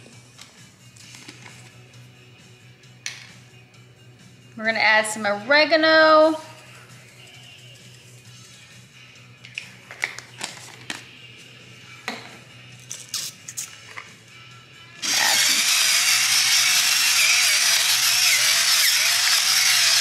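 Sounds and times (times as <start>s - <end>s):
electric pepper grinder whirring: 15.0s - 20.0s.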